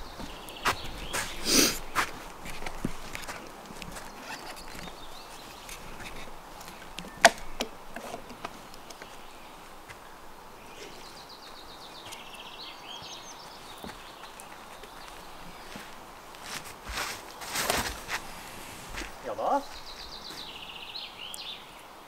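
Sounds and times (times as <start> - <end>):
high songbird trill: 8.7 - 15.9, 19.1 - 21.9.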